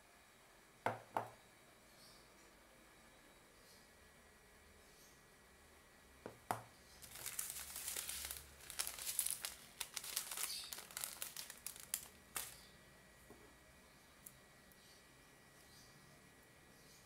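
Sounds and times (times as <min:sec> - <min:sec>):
plastic packet crinkling: 0:07.0 - 0:12.7.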